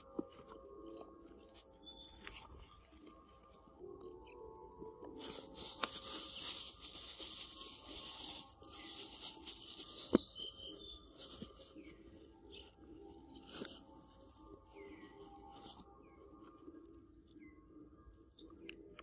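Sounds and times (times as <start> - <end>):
faint bird chirps: 0.1 - 18.8
close rustling and rubbing: 5.2 - 15.9.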